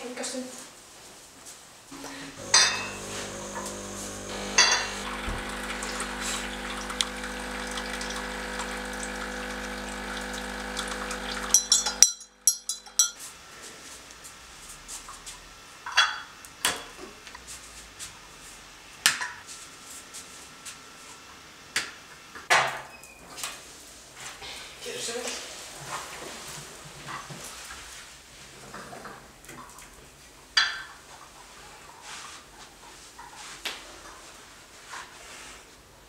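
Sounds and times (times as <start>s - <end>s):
coffee machine humming: 2.0s - 13.8s
china cups and spoons clinking: 2.5s - 3.1s, 4.5s - 5.0s, 11.4s - 13.2s
coffee machine knocks: 4.5s - 6.2s.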